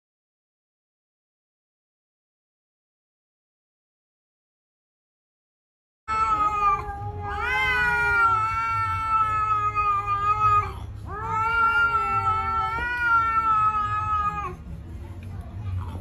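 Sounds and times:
kitten yowling: 6.1 - 14.6.

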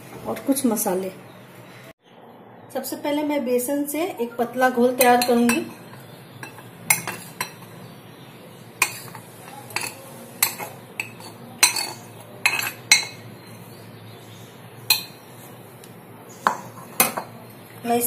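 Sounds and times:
metal spoon clinking on glass bowl: 5.0 - 7.8, 8.8 - 13.3, 14.9 - 15.2.

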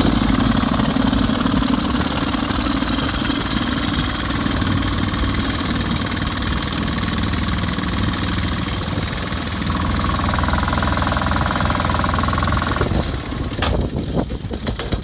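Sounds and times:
air compressor engine running: 0.0 - 14.7
sharp clicks and knocks: 13.5 - 15.0.

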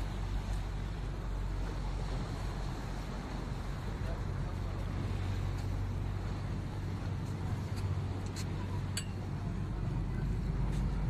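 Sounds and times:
boat engine droning: 0.0 - 11.0
light clinks: 8.2 - 9.3.

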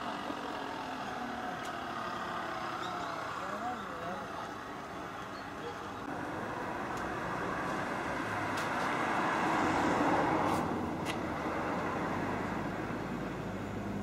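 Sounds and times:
car passing by: 6.1 - 14.0.

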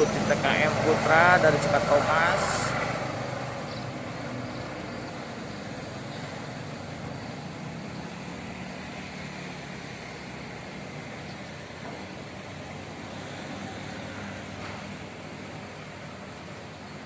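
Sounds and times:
diesel bus engines running: 0.0 - 17.0.

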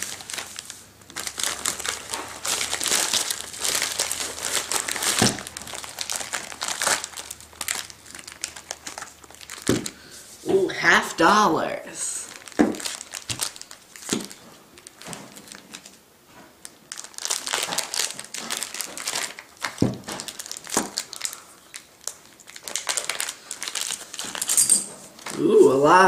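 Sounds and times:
plastic bag crinkling: 0.0 - 10.5, 12.2 - 26.0.

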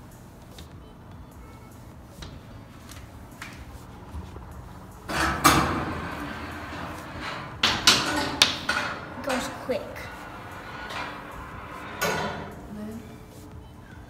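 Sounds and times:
ball rolling and rattling on wire: 3.6 - 13.4.

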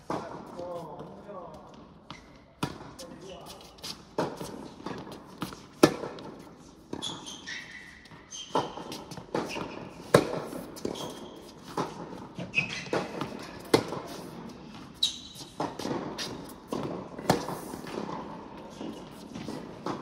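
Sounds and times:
shoe squeaks on court: 2.1 - 2.6, 6.9 - 17.4
racket striking tennis ball: 3.9 - 7.2, 8.5 - 20.0
ball bouncing on court: 8.5 - 20.0.

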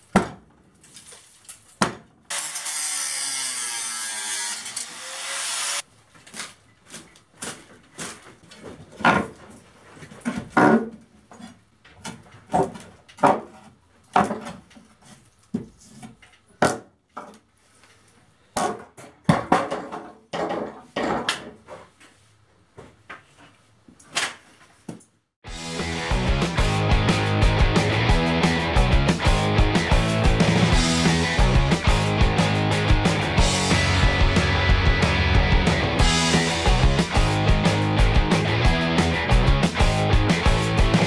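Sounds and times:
angle grinder cutting wood: 2.3 - 5.9.

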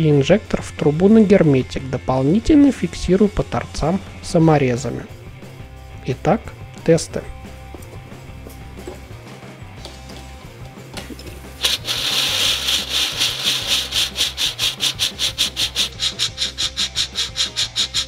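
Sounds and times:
rocket engine hissing in pulses: 11.6 - 18.0.

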